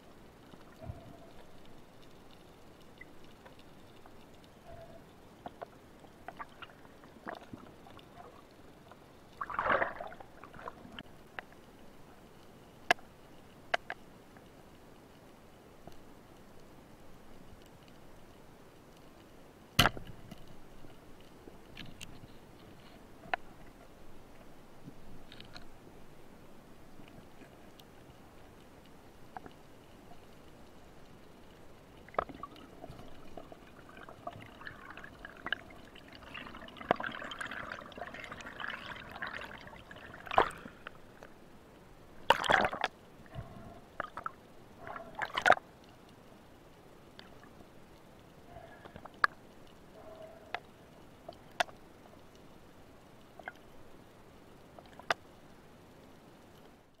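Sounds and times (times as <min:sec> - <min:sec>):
sharp underwater clicks: 0:12.8 - 0:14.5, 0:42.2 - 0:46.0, 0:48.6 - 0:52.5, 0:54.7 - 0:55.4.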